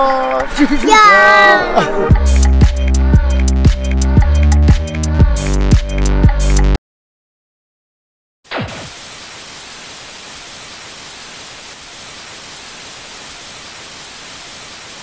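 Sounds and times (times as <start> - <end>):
white noise static hiss: 8.8 - 15.0.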